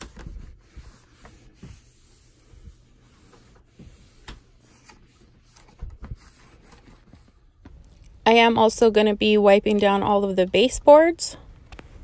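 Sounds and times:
cloth rubbing and rustling: 0:00.0 - 0:07.8.

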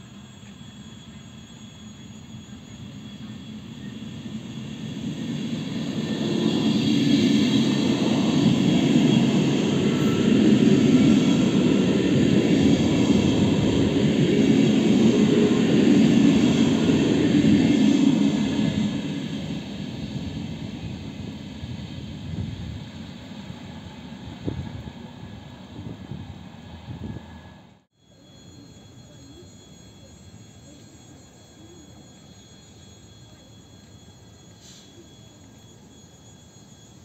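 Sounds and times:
train passing close by: 0:00.0 - 0:37.0.

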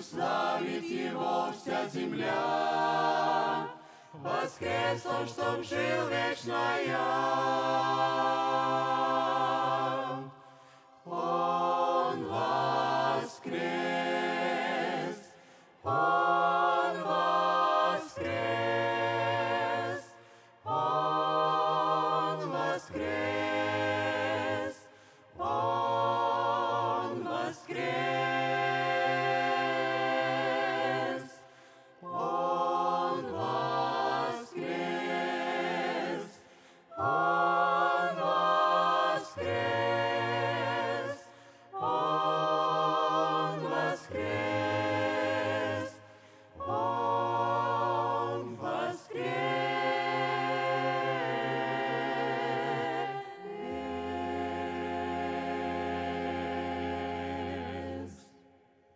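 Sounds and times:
choir singing a cappella: 0:00.0 - 0:58.9.

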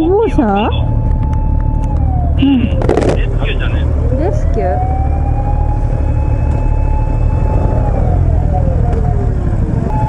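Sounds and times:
emergency vehicle siren wailing: 0:00.0 - 0:10.0
steady low rumble: 0:00.0 - 0:10.0.

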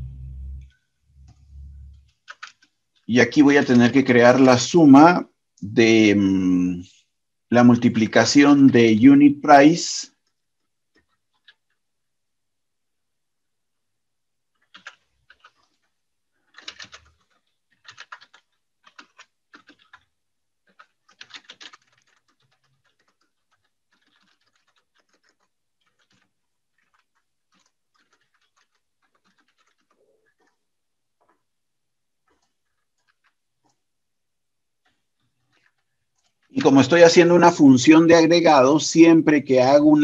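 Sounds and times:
typing on computer keyboard: 0:00.6 - 0:04.6, 0:10.1 - 0:11.8, 0:14.5 - 0:31.5, 0:32.2 - 0:33.8, 0:34.8 - 0:37.6.

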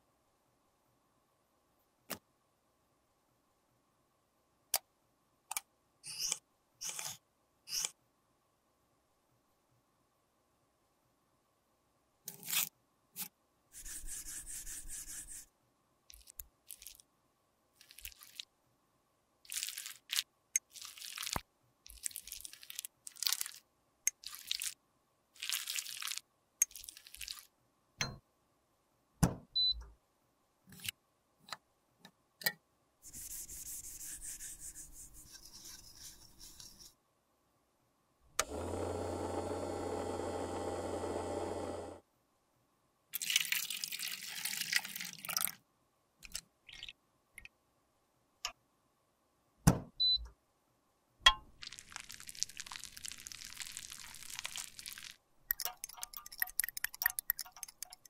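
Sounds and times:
ultrasonic cleaner humming: 0:38.4 - 0:42.0
metal spatula scraping tube: 0:55.5 - 0:58.0.

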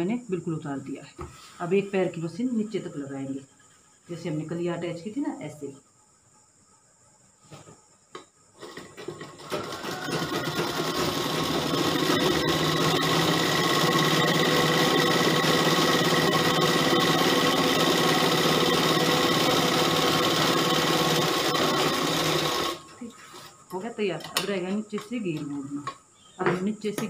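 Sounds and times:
sewing machine stitching: 0:08.6 - 0:22.8.

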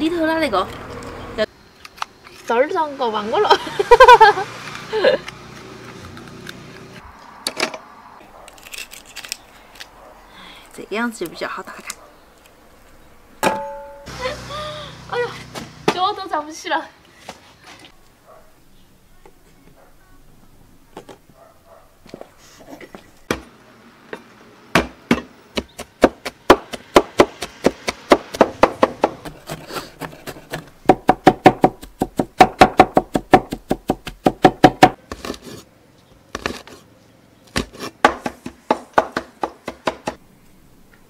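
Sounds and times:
cleaver chopping on wooden board: 0:24.7 - 0:35.5, 0:37.6 - 0:40.2.

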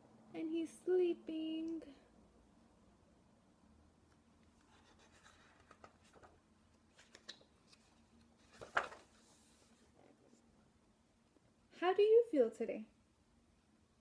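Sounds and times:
paper page rustling: 0:04.6 - 0:10.0
page turning swish: 0:06.9 - 0:09.8.

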